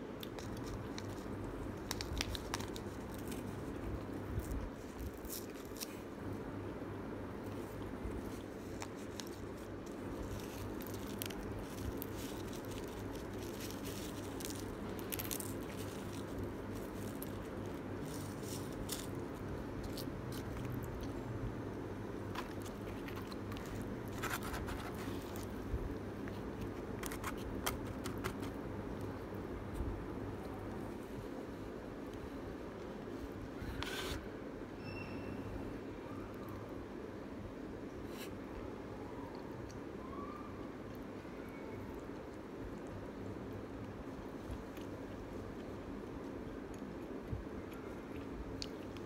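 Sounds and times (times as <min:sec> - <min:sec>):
steady low hum: 0:00.0 - 0:49.0
paper sachets crinkling: 0:00.2 - 0:06.0, 0:08.3 - 0:21.1.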